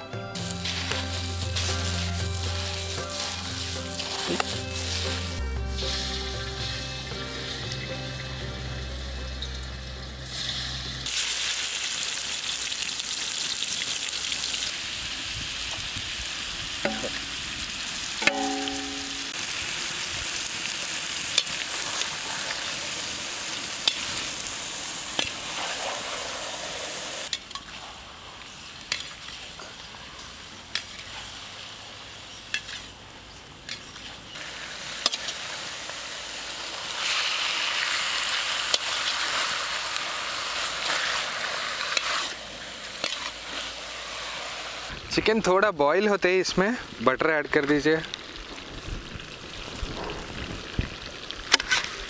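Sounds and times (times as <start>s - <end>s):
chicken sizzling in a pan: 0.4s - 6.8s, 10.2s - 27.3s, 34.3s - 45.0s.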